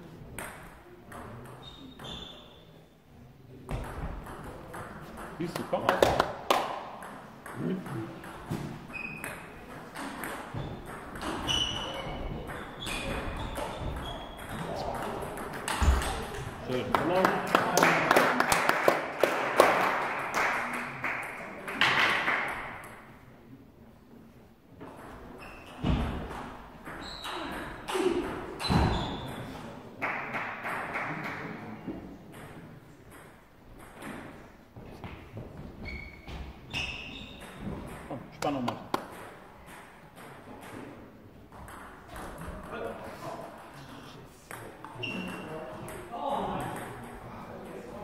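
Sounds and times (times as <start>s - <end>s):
shoes squeaking on floor: 1.6s - 2.8s, 8.5s - 9.6s, 10.5s - 14.9s, 25.3s - 26.2s, 26.9s - 29.6s, 34.9s - 37.9s, 44.8s - 45.5s
short high-pitched squeaks: 10.6s - 12.2s.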